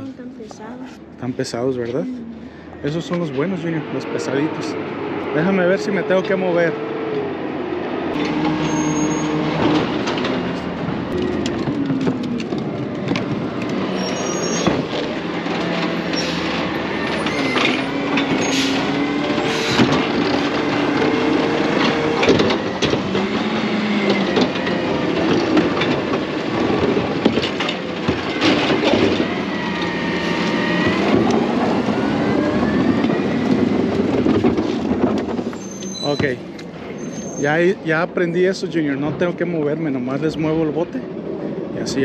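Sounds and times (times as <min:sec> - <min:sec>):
hydraulic whines rising and falling: 0:02.3 - 0:37.2
garbage truck diesel engine revving: 0:03.2 - 0:35.8.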